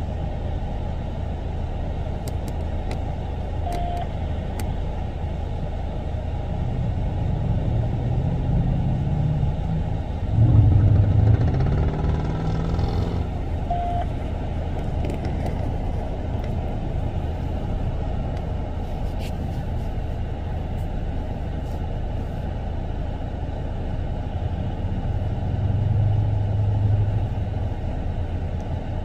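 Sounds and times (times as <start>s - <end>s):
street traffic: 0.0s - 29.0s
vehicle passing close by: 7.3s - 13.5s.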